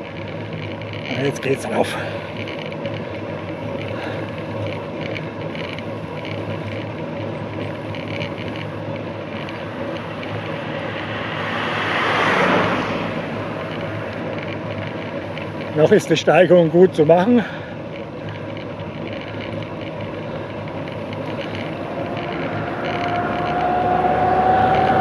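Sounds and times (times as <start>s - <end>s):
bicycle tyre noise: 0.0s - 25.0s
car passing: 9.6s - 15.5s, 20.1s - 25.0s.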